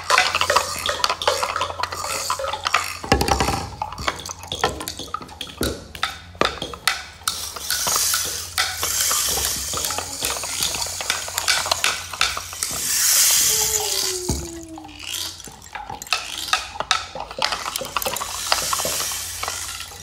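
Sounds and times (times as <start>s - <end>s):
sticks tapping on objects: 0.0s - 20.0s
rushing hiss: 12.5s - 15.2s.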